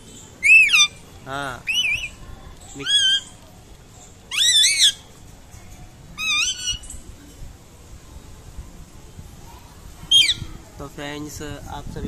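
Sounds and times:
parakeet calling: 0:00.4 - 0:01.0, 0:01.6 - 0:02.2, 0:02.8 - 0:03.4, 0:04.3 - 0:05.1, 0:06.2 - 0:07.0, 0:10.1 - 0:10.4.

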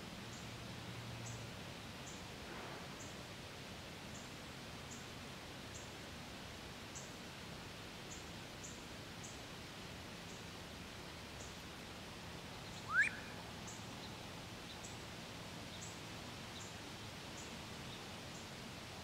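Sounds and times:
faint outdoor hiss: 0:00.0 - 0:19.0
duck whistled squeal: 0:12.9 - 0:13.3.

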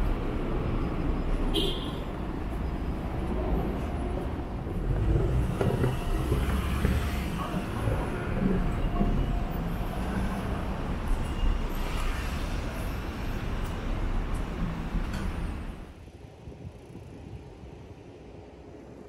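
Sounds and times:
vehicles rumbling by: 0:00.0 - 0:18.8.

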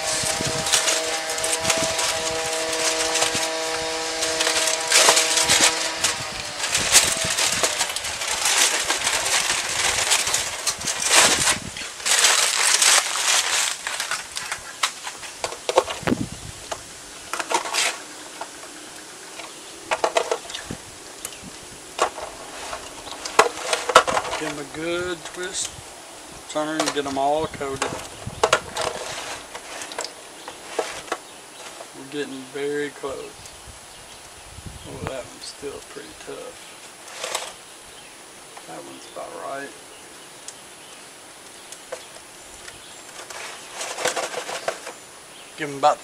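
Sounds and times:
spatula stirring in foil pan: 0:00.0 - 0:16.0, 0:26.5 - 0:32.0
aluminium foil crinkling: 0:00.0 - 0:25.8, 0:26.5 - 0:33.5, 0:35.3 - 0:37.7, 0:41.4 - 0:46.0.

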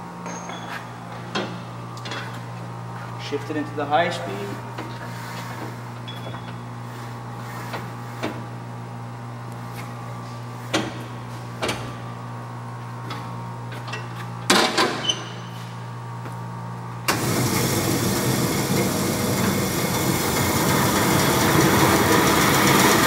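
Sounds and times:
bandsaw running: 0:17.1 - 0:23.0.

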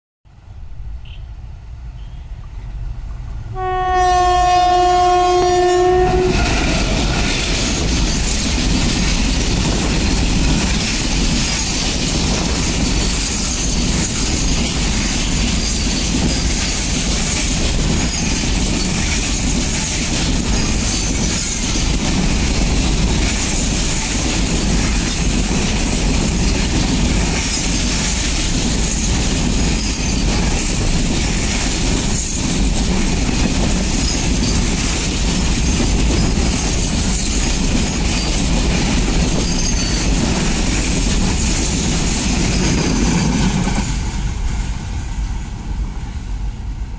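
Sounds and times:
locomotive horn blast: 0:03.5 - 0:07.0
freight train wheels clattering: 0:04.7 - 0:45.6.

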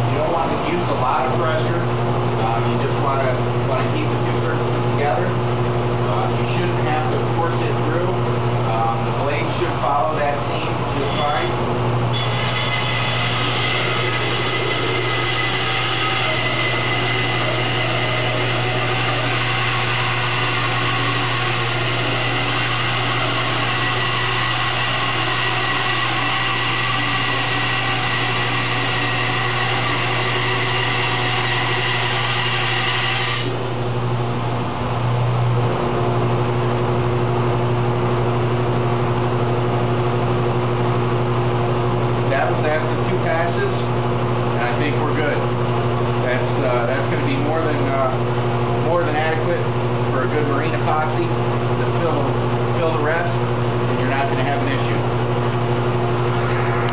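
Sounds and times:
bandsaw motor hum: 0:06.7 - 0:35.0
bandsaw cutting wood: 0:12.2 - 0:33.6.

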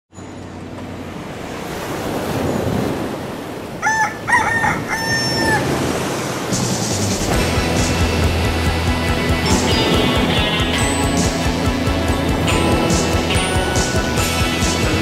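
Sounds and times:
rooster crowing: 0:03.8 - 0:05.8.

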